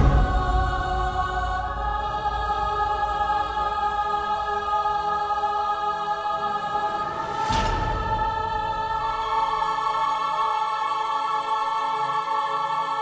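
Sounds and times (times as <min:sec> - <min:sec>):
low rumble: 0:00.0 - 0:05.1
sustained choral chord: 0:00.0 - 0:13.0.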